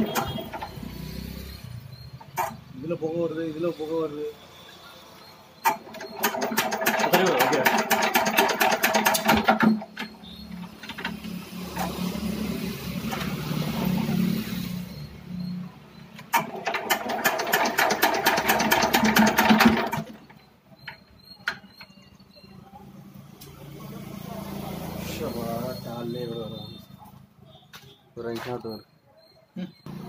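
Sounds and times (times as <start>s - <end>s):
diesel engine clattering: 0.0s - 2.6s, 5.6s - 14.3s, 16.2s - 22.4s.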